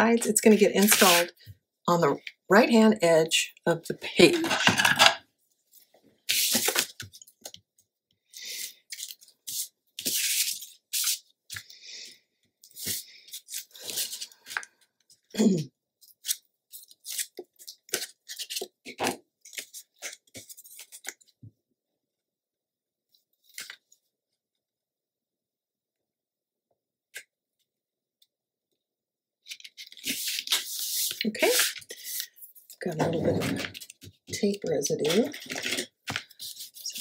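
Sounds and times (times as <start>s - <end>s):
tape and paper rustling and tearing: 0.8s - 1.3s, 6.2s - 7.5s, 8.5s - 11.6s, 12.7s - 14.6s, 16.0s - 21.2s, 29.4s - 37.0s.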